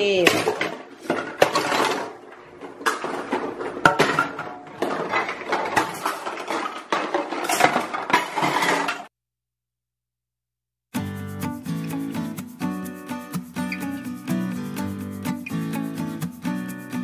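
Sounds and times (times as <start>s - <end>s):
toy dishes clattering in sink: 0.0s - 9.1s.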